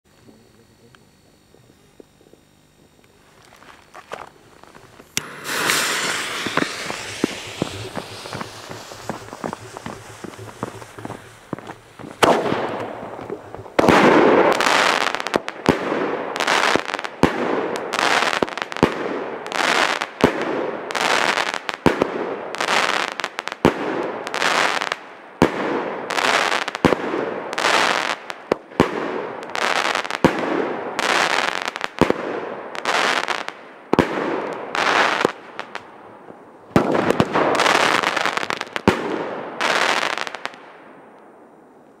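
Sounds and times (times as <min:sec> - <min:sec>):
crackling firework stars: 0:00.1 - 0:42.0
firework launch cracks: 0:03.5 - 0:22.2, 0:36.7 - 0:40.6.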